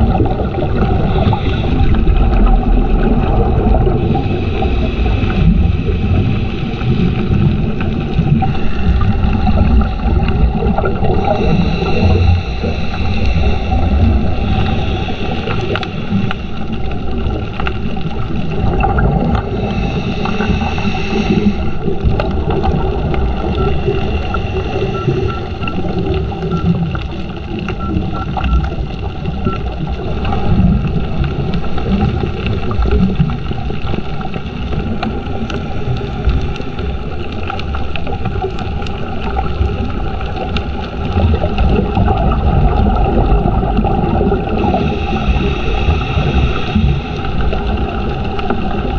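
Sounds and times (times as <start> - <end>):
muffled underwater rumble: 0.0 - 48.9
faint high whine: 0.1 - 17.8, 18.5 - 29.8, 43.0 - 48.8.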